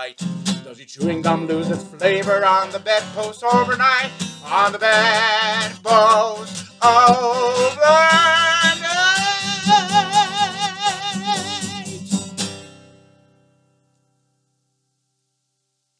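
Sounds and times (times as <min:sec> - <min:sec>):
man singing: 0:00.0 - 0:12.2
strummed acoustic guitar: 0:00.0 - 0:14.6.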